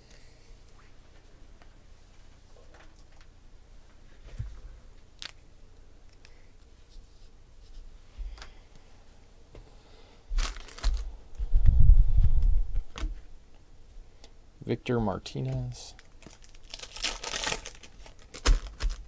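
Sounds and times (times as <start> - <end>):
foil wrapper rustling: 10.4 - 11.1, 16.0 - 19.0
low rumble of handling: 10.8 - 13.3.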